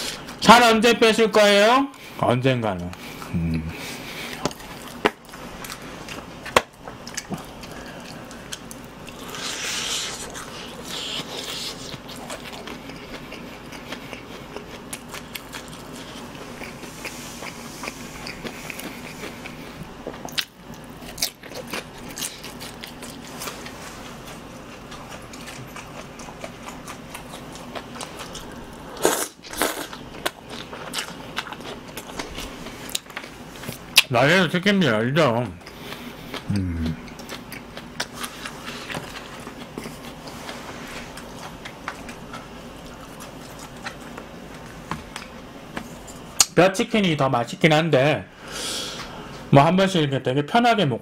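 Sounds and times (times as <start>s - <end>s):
chewing crunchy fried chicken: 2.8s - 46.6s
wet mouth sounds: 8.2s - 14.3s, 36.3s - 38.2s.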